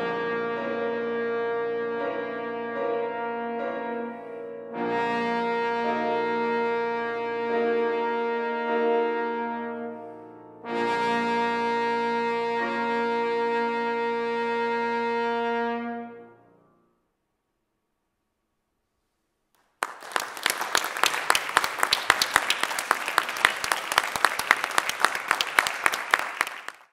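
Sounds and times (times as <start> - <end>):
trombone and piano note: 0.0 - 16.5
audience applauding: 19.6 - 26.9.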